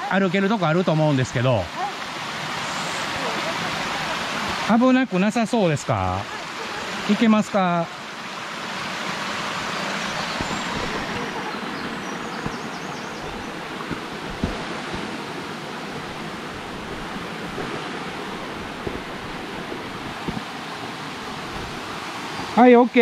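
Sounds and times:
stream rushing over rocks: 0:00.0 - 0:23.0
soft knocks: 0:16.0 - 0:20.5.

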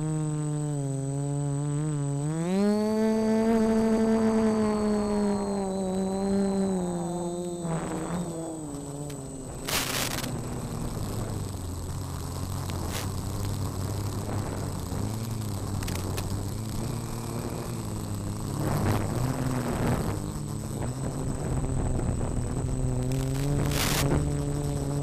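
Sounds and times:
steady high-pitched tone: 0:00.0 - 0:12.9
burst of static: 0:00.0 - 0:25.0
quadcopter motors buzzing: 0:00.0 - 0:25.0.

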